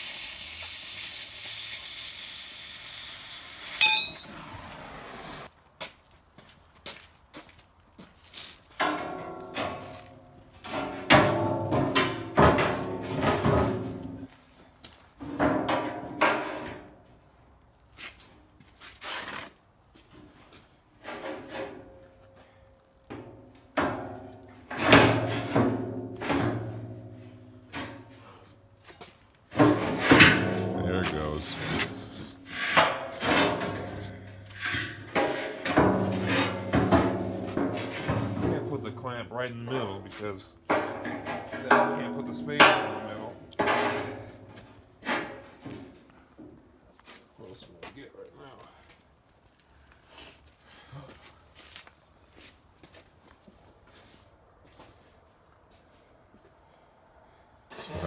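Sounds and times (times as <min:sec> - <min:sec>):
cutting torch hissing: 0:00.0 - 0:05.5
loud metallic clink: 0:03.8 - 0:04.2.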